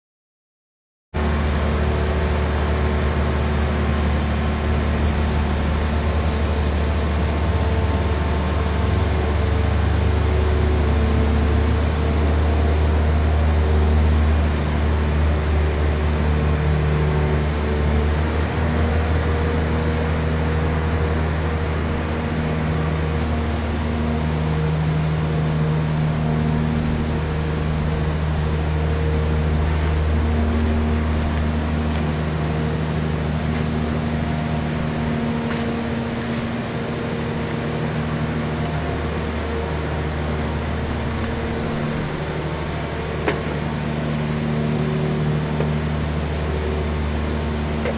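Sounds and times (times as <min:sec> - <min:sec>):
heavy engine drone: 0:01.2 - 0:47.9
hydraulic tones: 0:01.2 - 0:47.9.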